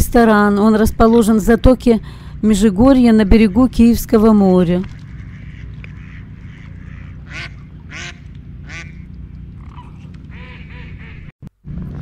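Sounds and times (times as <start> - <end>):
waterfowl nasal calls: 4.9 - 11.3.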